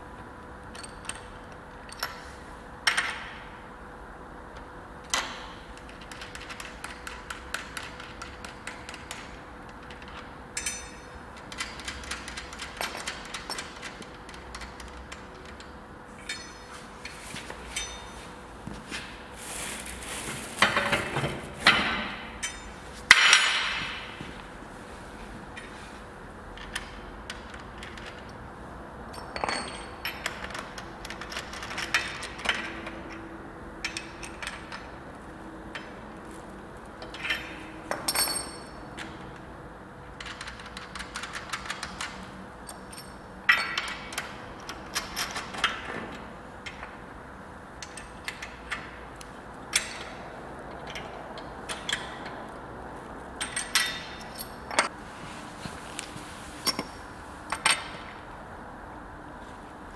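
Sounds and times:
metal tools clinking on steel: 9.9 - 11.9, 16.2 - 18.4, 21.8 - 24.0, 29.1 - 32.7, 37.0 - 39.2, 53.4 - 54.9.

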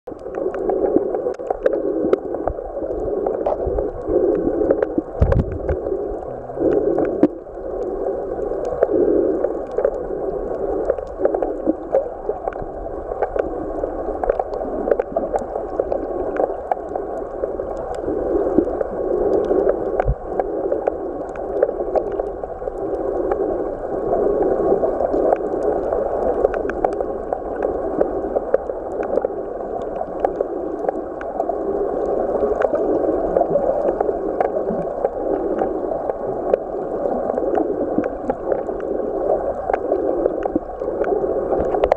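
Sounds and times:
muffled underwater churning rush: 0.1 - 41.9.

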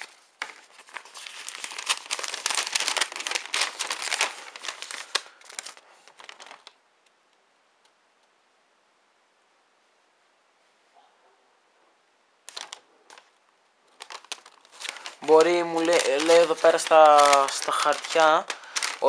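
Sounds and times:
paper rustling and crinkling: 0.0 - 6.8, 12.5 - 19.0.

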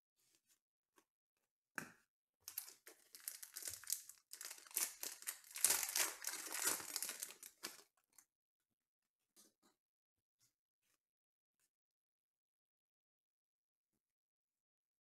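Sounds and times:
foil wrapper crinkling: 2.5 - 7.9.

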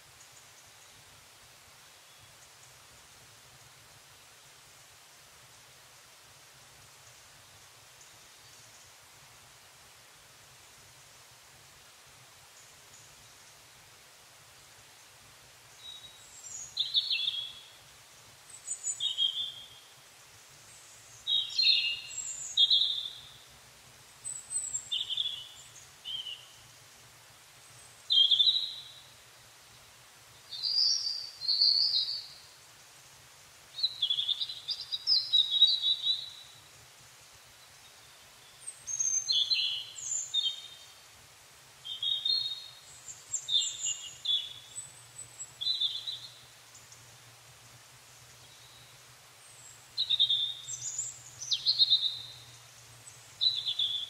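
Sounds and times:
songbird warbling: 21.1 - 23.4, 24.3 - 26.6, 28.0 - 29.0, 38.7 - 40.8, 53.4 - 54.0.

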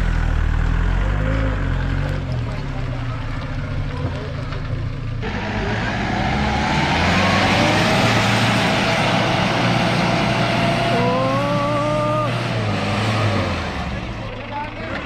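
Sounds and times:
jeep engine revving: 0.0 - 15.0.

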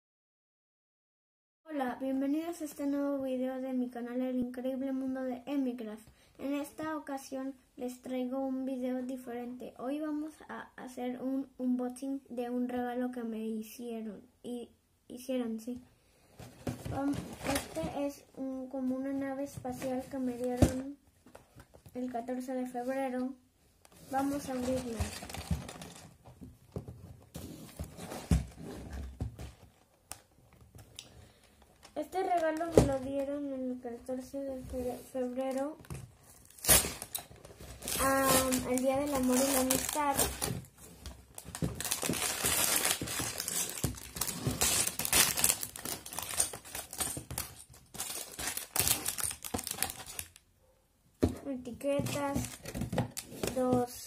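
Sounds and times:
cardboard box rustling: 16.4 - 18.0, 24.0 - 29.8, 36.4 - 50.2
cardboard box knocks and thumps: 24.9 - 29.6.

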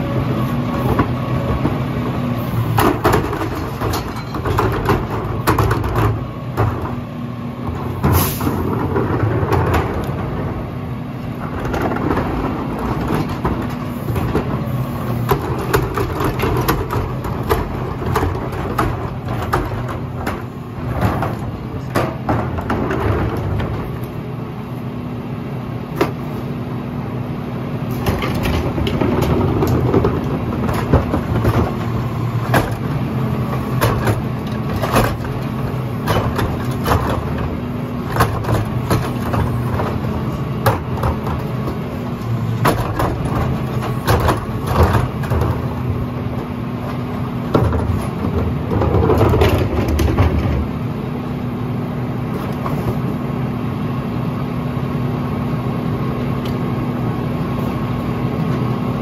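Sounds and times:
garbage truck engine running: 0.0 - 59.0
hydraulic cart tipper dumping: 0.0 - 59.0
knocks and clatters: 2.7 - 7.0, 7.6 - 10.6, 11.3 - 24.2, 27.9 - 50.8.

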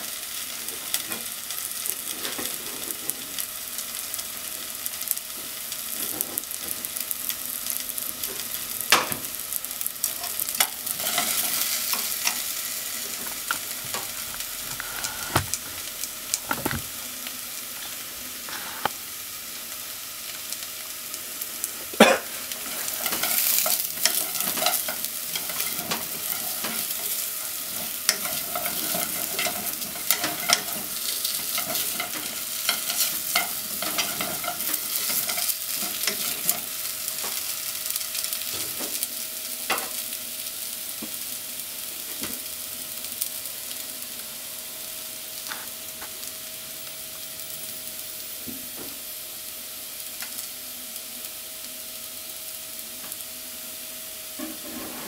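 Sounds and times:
potatoes sizzling in a pot: 0.0 - 55.0
utensils scraping a pan: 10.2 - 12.5, 22.6 - 36.7, 54.4 - 55.0.

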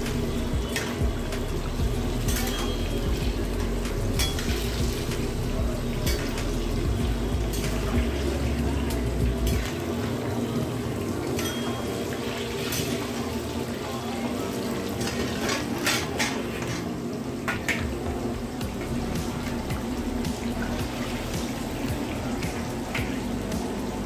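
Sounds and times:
hot oil bubbling and sizzling: 0.0 - 24.0.

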